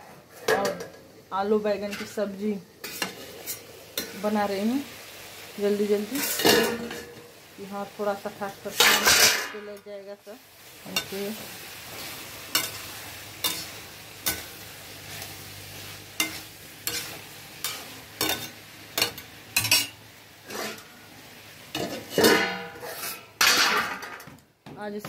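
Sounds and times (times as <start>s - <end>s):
food sizzling: 0.0s - 25.0s
metal spatula scraping pan: 1.8s - 4.3s, 5.9s - 7.3s, 8.6s - 9.9s, 10.9s - 21.0s, 21.7s - 24.1s.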